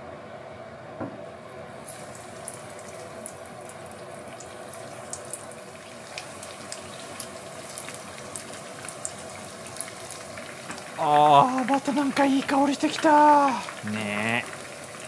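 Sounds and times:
steady background hum: 0:00.0 - 0:15.0
chicken sizzling in hot oil: 0:01.7 - 0:15.0
oil crackling and popping: 0:01.8 - 0:15.0.

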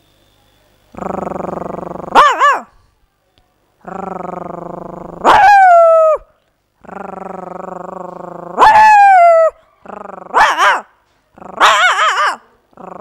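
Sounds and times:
woman imitating puppy whining: 0:03.9 - 0:06.3, 0:07.0 - 0:10.4.

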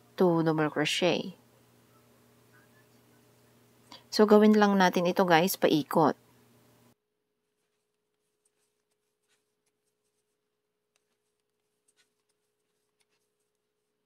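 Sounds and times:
faint steady hum: 0:00.0 - 0:07.0.

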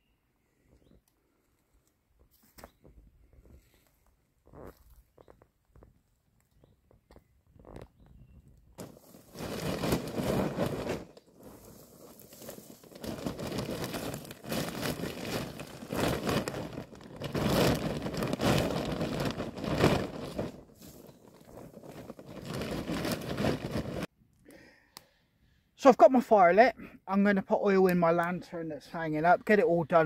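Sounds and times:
crinkly bag rustling: 0:08.8 - 0:24.1
hands crunching dry grass: 0:08.8 - 0:24.1.

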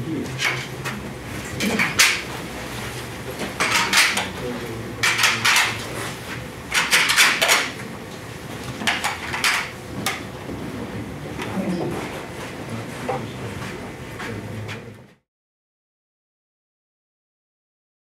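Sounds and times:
placards clattering together: 0:01.6 - 0:02.3, 0:03.4 - 0:04.4, 0:05.0 - 0:05.9, 0:06.7 - 0:07.8, 0:08.7 - 0:10.2.

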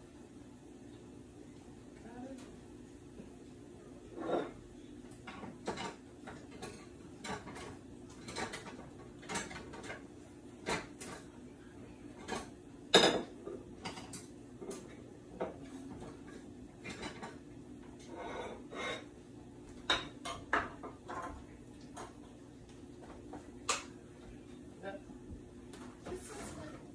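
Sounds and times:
dishes and cutlery clinking: 0:04.1 - 0:04.6, 0:05.2 - 0:10.0, 0:12.2 - 0:22.2.

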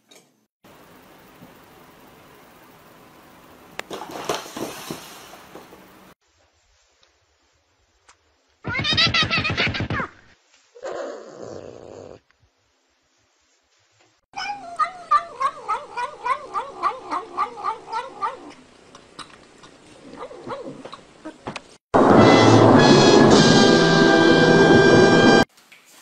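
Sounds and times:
cat yowling: 0:14.4 - 0:18.6.

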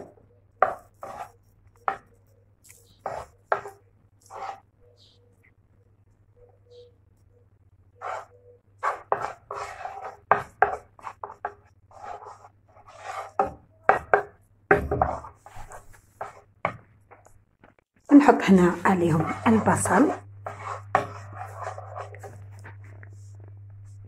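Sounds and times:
spatula scraping frying pan: 0:00.0 - 0:01.3, 0:02.9 - 0:04.6, 0:08.0 - 0:17.2, 0:18.3 - 0:23.0
spatula knocking on pan: 0:13.4 - 0:15.3.

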